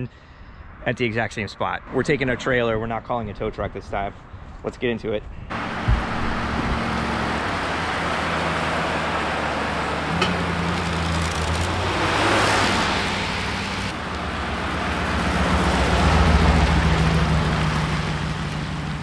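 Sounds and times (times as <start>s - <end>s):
car passing with tyre noise: 5.5s - 19.0s
pickup truck engine hum: 5.5s - 19.0s.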